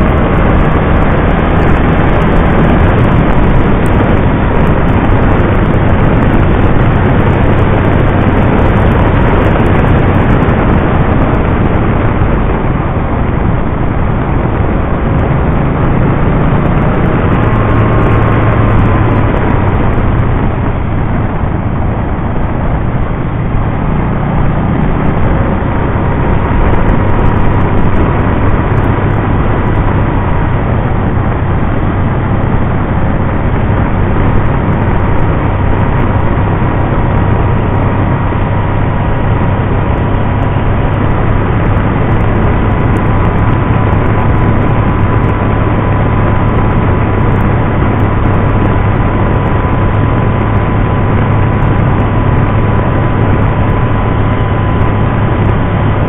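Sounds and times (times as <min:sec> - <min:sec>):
faint steady whine: 0:00.0 - 0:56.0
motorcycle engine drone: 0:00.0 - 0:56.0
wind and road noise: 0:00.0 - 0:56.0.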